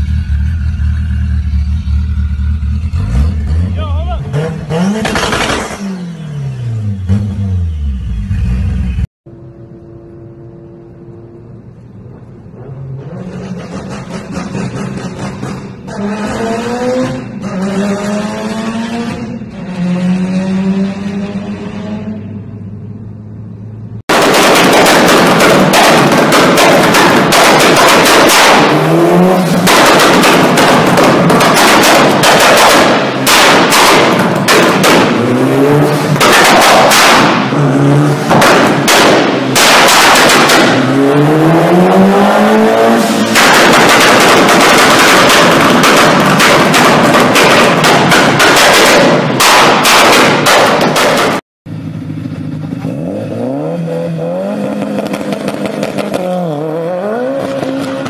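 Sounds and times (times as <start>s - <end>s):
car engine revving: 0.0s - 58.0s
exhaust bangs and pops: 4.0s - 5.9s, 24.1s - 51.4s, 54.7s - 56.4s
car engine running steadily: 51.7s - 53.0s.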